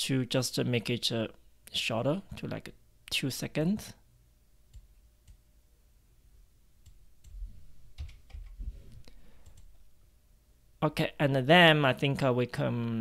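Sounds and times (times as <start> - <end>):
soft low thumps: 7.2 - 9.1
computer mouse and keyboard clicks: 8.0 - 8.6.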